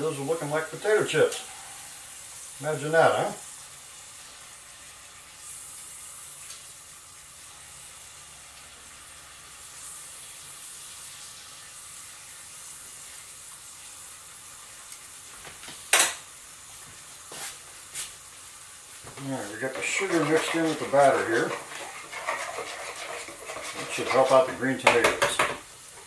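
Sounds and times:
potatoes sizzling in hot oil: 0.0 - 26.0.

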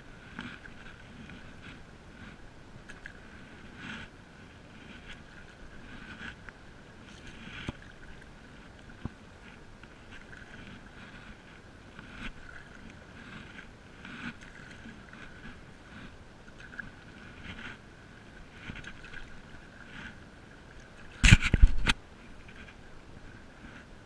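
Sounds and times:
low water rumble: 0.0 - 24.0
paddle splashing and dripping: 5.1 - 22.0.

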